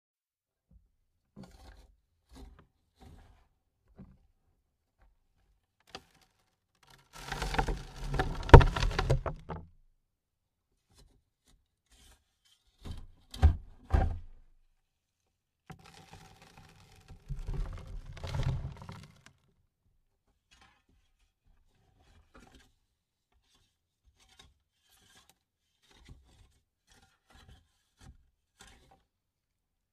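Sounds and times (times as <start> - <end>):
soil pattering on coffin lid: 7.2 - 9.5
thuds: 7.5 - 9.6.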